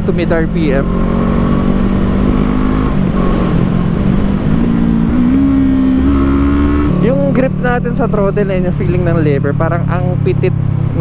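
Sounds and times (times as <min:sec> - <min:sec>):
wind rush: 0:00.0 - 0:07.3.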